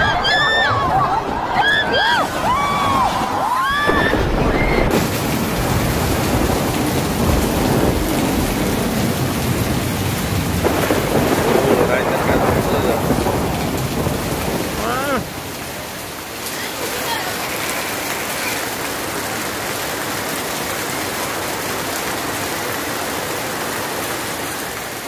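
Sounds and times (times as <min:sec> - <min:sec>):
heavy rain: 0:00.0 - 0:25.0
rumbling thunder: 0:02.7 - 0:15.8.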